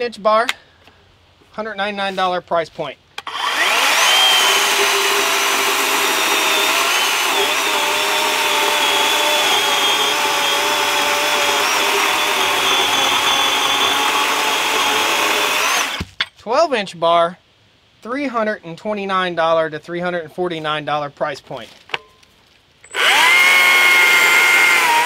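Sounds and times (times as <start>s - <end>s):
electric chainsaw motor whine: 3.2s - 16.0s, 22.9s - 25.0s
chain rasping through wood: 3.3s - 16.0s.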